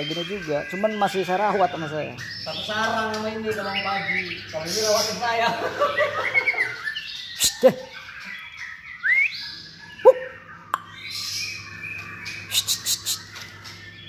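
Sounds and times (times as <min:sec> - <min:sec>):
sharp clicking bird notes: 0:02.2 - 0:04.4, 0:10.0 - 0:11.1, 0:11.8 - 0:14.0
songbird whistling: 0:05.8 - 0:14.0.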